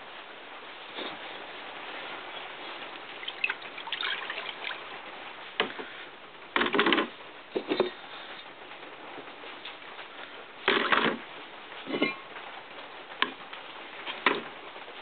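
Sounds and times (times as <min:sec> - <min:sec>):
liquid splashing and dribbling: 0:02.4 - 0:06.9, 0:10.6 - 0:11.3.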